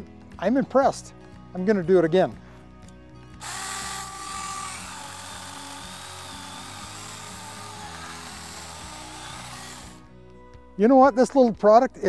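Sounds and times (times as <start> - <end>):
electric chainsaw cutting branch: 3.4 - 10.1.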